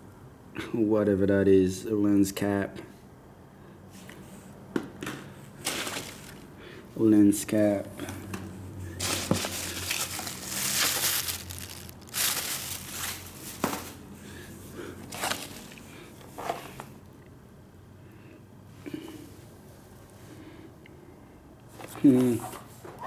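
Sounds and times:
packing peanuts rustling: 0:05.6 - 0:06.5, 0:09.0 - 0:14.0, 0:15.0 - 0:15.8.

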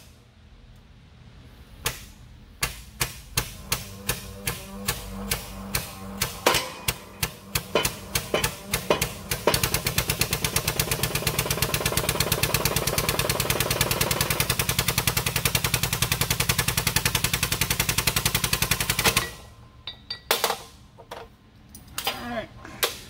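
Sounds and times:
short metallic knocks: 0:02.7 - 0:10.2
air-driven pump pulsing rapidly: 0:03.4 - 0:19.4.

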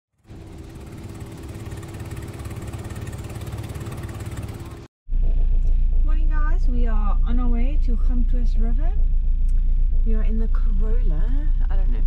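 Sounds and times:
outboard motor running: 0:00.2 - 0:04.9.

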